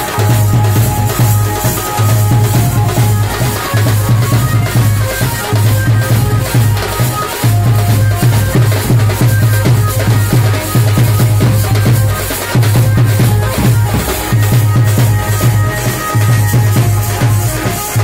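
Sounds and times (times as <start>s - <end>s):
drum-led dance music: 0.0s - 18.0s.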